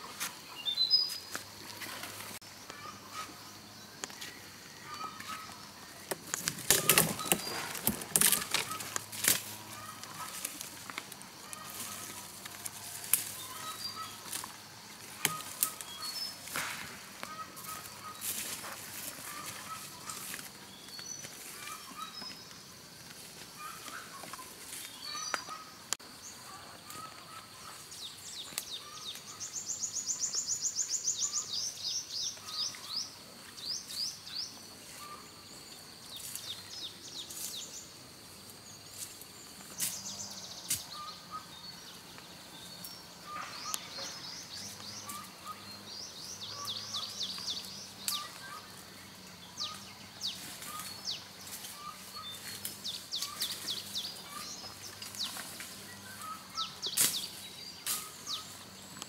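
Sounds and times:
small birds singing: 0:00.0 - 0:59.0.

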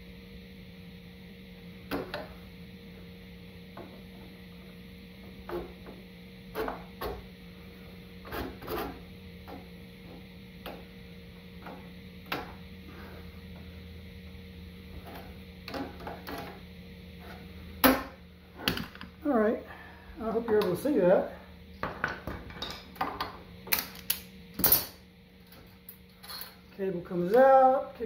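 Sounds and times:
low hum: 0:09.0 - 0:28.0.

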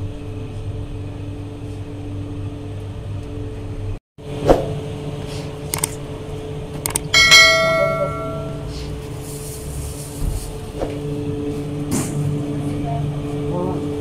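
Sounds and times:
machine hum with low rumble: 0:00.0 - 0:14.0
bright bell ding: 0:07.2 - 0:08.7.

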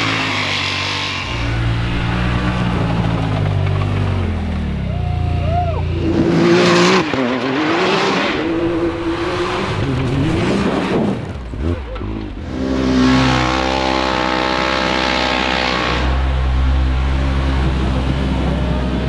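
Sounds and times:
engine revving hard: 0:00.0 - 0:04.5, 0:06.0 - 0:19.0
spinning tires hissing: 0:00.0 - 0:04.7.

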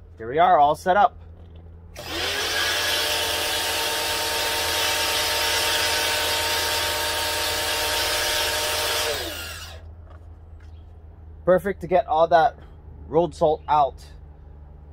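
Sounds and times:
pump motor humming: 0:02.0 - 0:09.9.

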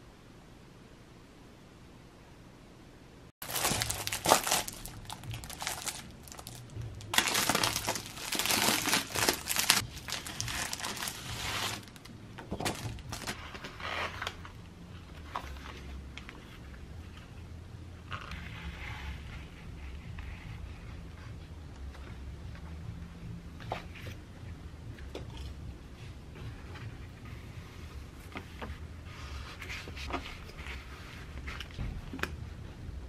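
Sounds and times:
cellophane wrapping crinkling: 0:03.4 - 0:14.4
sheets and paper rustling: 0:03.4 - 0:14.5.

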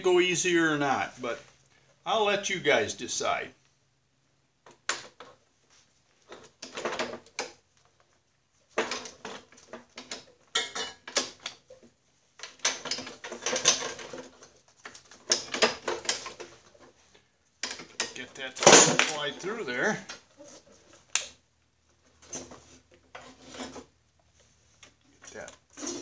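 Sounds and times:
metal parts clattering: 0:12.4 - 0:16.7, 0:17.6 - 0:19.3.

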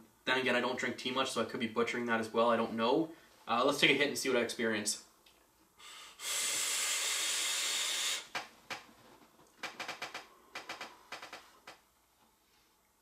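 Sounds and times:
e-cigarette vapour hiss: 0:05.8 - 0:08.3
faint clicks and crackles: 0:08.3 - 0:11.8.

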